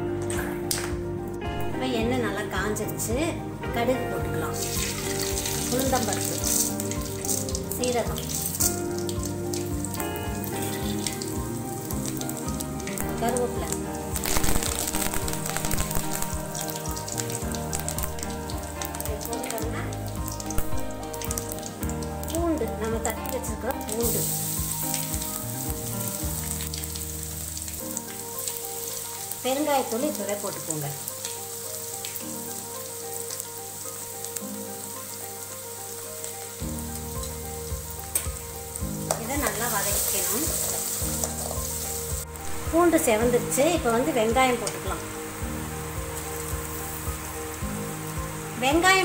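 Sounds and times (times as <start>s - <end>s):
seeds sizzling in hot oil: 3.8s - 49.0s
mustard seeds popping: 4.6s - 27.1s.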